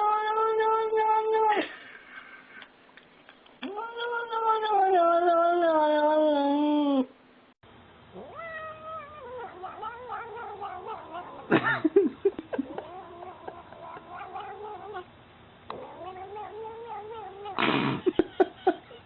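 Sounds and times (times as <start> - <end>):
cat meowing: 3.6 - 7.0, 8.2 - 11.5, 12.6 - 15.1, 15.7 - 17.6.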